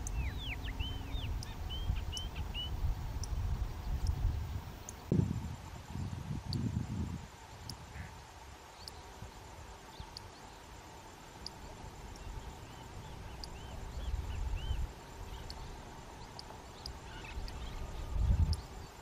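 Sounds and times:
faint high bird chirps: 0.0s - 4.2s, 11.5s - 19.0s
wind gusting on microphone: 0.0s - 8.1s, 12.2s - 19.0s.

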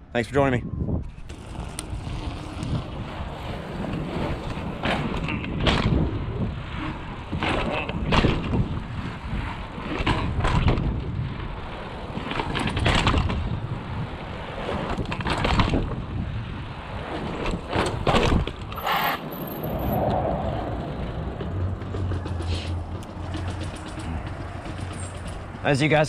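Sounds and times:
wind rumbling on microphone: 0.4s - 26.0s
bike rattling over stone pavers: 1.3s - 6.1s, 21.2s - 26.0s.

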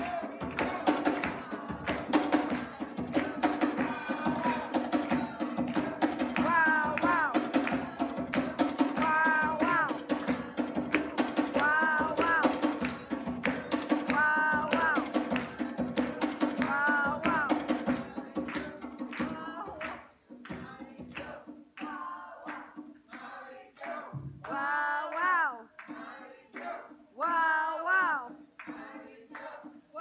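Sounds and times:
talking drum and sabar drumming: 0.0s - 21.7s.

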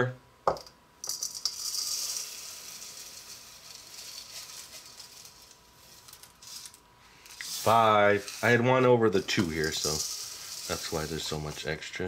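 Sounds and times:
rice cereal pouring into bowl: 1.0s - 11.9s.

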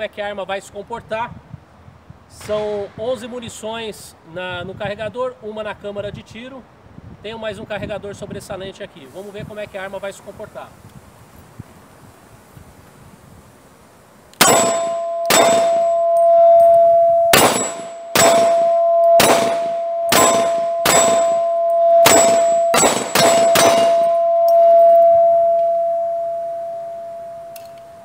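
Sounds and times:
pistol shots: 14.4s - 15.8s, 17.3s - 21.4s, 22.0s - 24.0s
metallic ringing of steel target: 14.4s - 28.0s.

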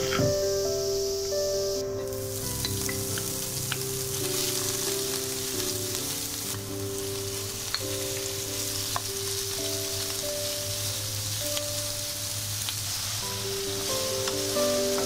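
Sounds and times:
oil sizzling in a frying pan: 0.0s - 15.0s.

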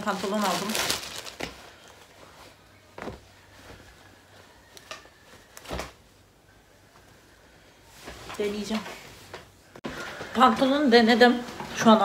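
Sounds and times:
plastic bag and denim rustling: 0.0s - 5.9s.

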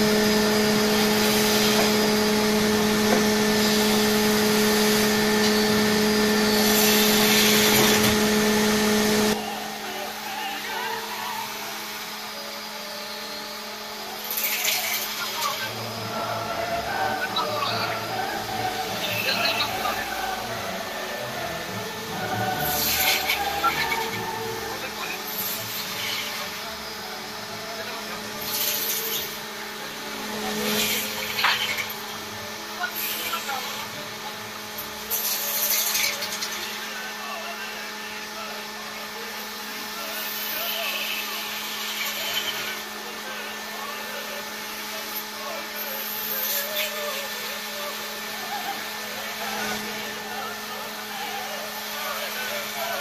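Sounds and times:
turning tool cutting wood: 0.0s - 36.8s
lathe motor hum: 0.0s - 53.0s.

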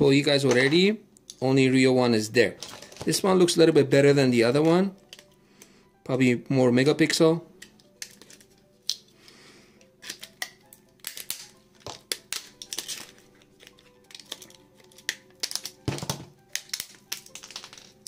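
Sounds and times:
quiet background music: 0.0s - 18.0s
plastic parts clicking and snapping: 4.6s - 5.4s, 7.6s - 9.1s, 10.0s - 18.0s.

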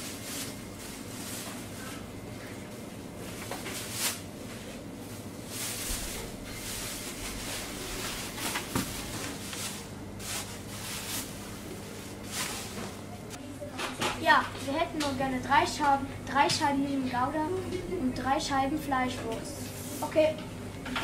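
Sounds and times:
plastic bags rustling: 0.0s - 13.4s
steady low hum: 0.0s - 21.0s.

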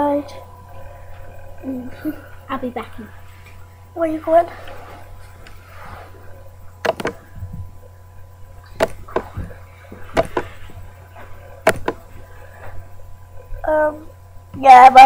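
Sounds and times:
steady electrical hum: 0.0s - 15.0s
smartphone tapping clicks: 6.9s - 7.2s.

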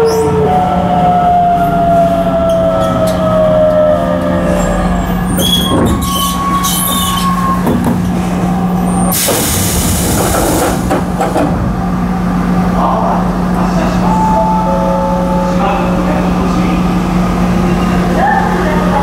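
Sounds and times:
loud air release hiss: 9.1s - 10.9s.

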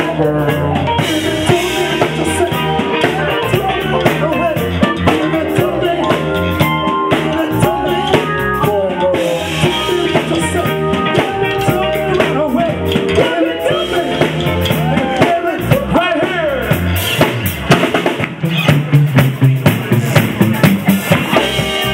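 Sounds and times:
person singing: 0.0s - 16.8s
live funk band playing: 0.0s - 21.9s.

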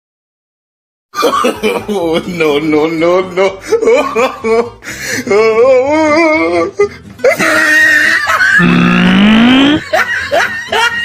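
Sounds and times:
comedy soundtrack music: 3.3s - 11.0s
voice sliding upward in pitch: 8.6s - 9.8s
wobbling voice with vibrato: 8.6s - 9.8s.

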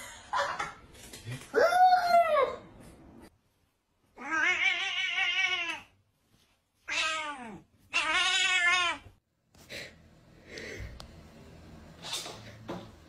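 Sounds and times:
cat meowing: 6.9s - 9.1s.

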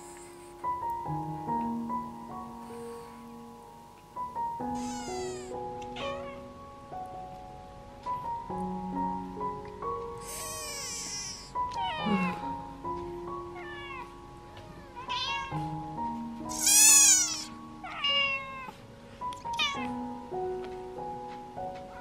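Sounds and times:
soft background music: 0.0s - 22.0s
kitten mewing: 4.7s - 6.4s, 10.2s - 12.6s, 16.5s - 18.7s.

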